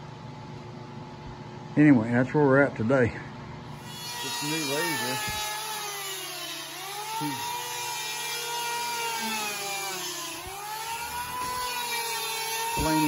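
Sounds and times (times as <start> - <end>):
electric planer shaving wood: 3.8 - 13.0.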